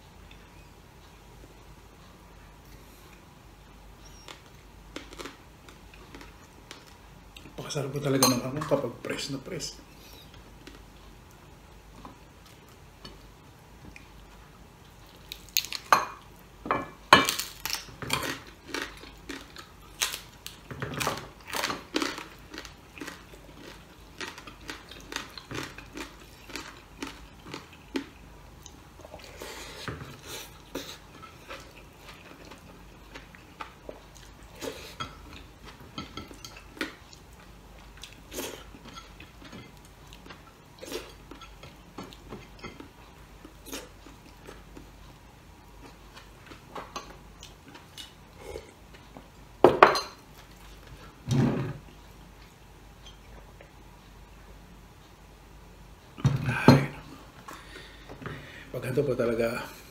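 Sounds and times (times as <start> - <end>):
chewing: 17.4 - 45.2.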